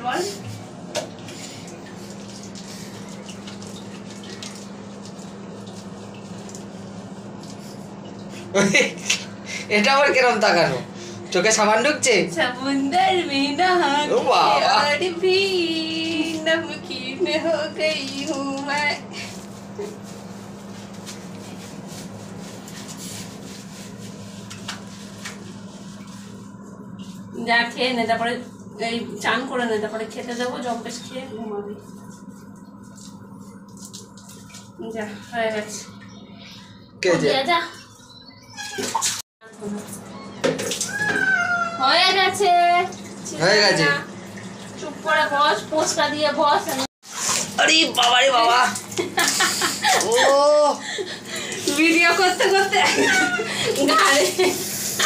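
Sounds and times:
tap water running: 0.0s - 55.0s
water splashing and dripping: 0.9s - 8.4s, 17.9s - 19.0s, 31.8s - 36.1s, 46.6s - 50.4s, 51.4s - 55.0s
wet cat fur being scrubbed: 1.3s - 8.8s, 17.4s - 28.9s, 30.5s - 35.6s, 46.6s - 47.6s, 51.6s - 55.0s.

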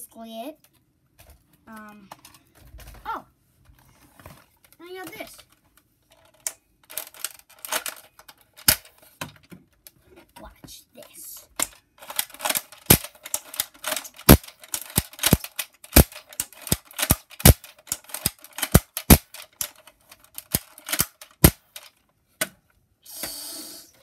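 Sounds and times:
toy blaster plastic clicks: 6.4s - 8.9s, 11.6s - 22.0s
short hissing rush: 23.0s - 24.0s.

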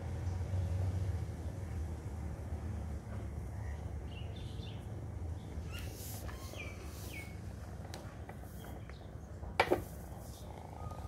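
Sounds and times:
small birds chirping: 3.6s - 11.0s.

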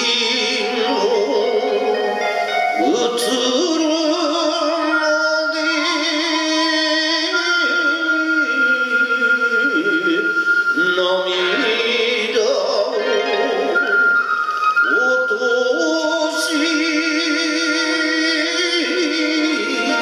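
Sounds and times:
man chanting with vibrato: 0.0s - 14.1s, 14.8s - 20.0s
musical accompaniment: 0.0s - 20.0s.

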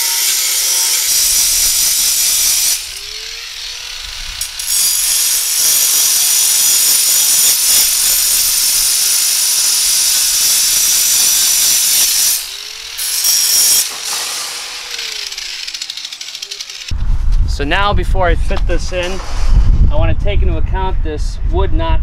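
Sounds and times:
angle grinder cutting steel wire: 0.0s - 16.9s
grinder motor whining freely: 0.0s - 16.9s.

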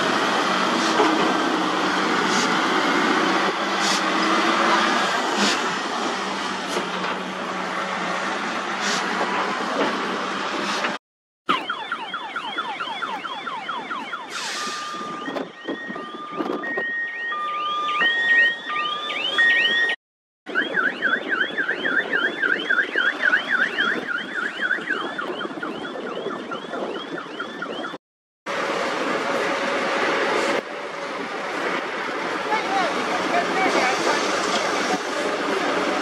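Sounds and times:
truck engine: 0.0s - 13.4s, 28.5s - 36.0s
electronic warbling alarm: 11.5s - 28.0s.

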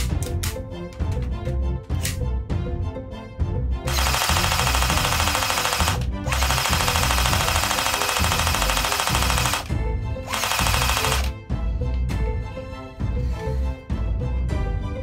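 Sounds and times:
background music with steady beat: 0.0s - 15.0s
toy machine gun rattling: 3.9s - 9.7s, 10.3s - 11.3s.

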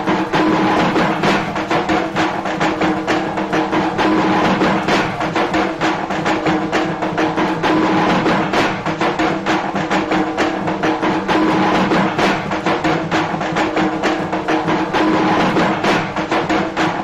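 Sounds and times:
fast loud drumming: 0.0s - 17.0s.

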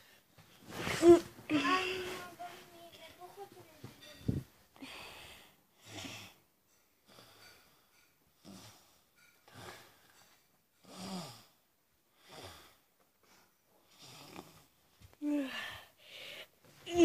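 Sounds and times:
child breathing noisily: 4.3s - 6.4s, 15.2s - 16.6s.

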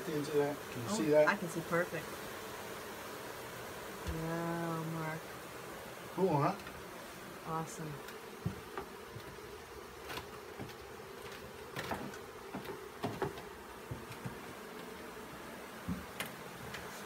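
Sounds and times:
honeybees buzzing: 0.0s - 17.0s
hive box knocks: 8.4s - 9.4s, 10.0s - 14.8s, 15.8s - 16.8s.

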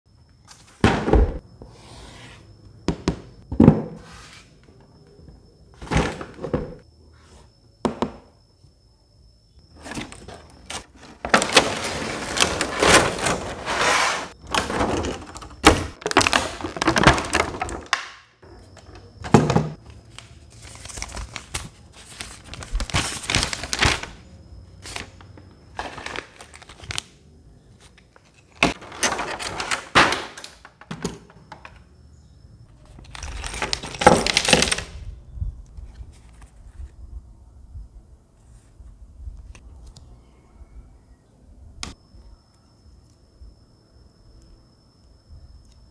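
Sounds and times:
packaging rustling and crinkling: 20.1s - 24.2s, 24.8s - 27.1s.

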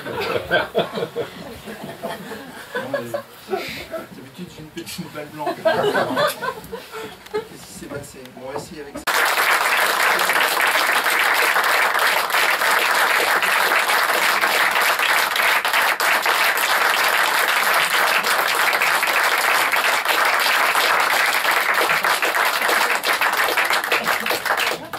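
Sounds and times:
audience applauding: 9.0s - 24.9s.

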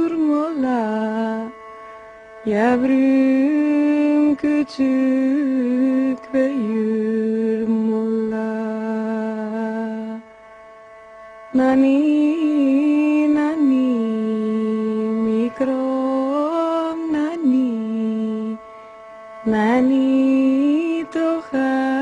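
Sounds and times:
person singing a lullaby: 0.0s - 1.5s, 2.5s - 10.2s, 11.6s - 18.6s.

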